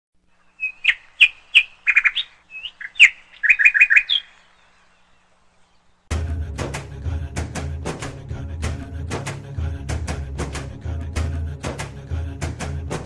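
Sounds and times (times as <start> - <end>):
small bird chirping: 0.3 - 6.1
music: 6.1 - 13.0.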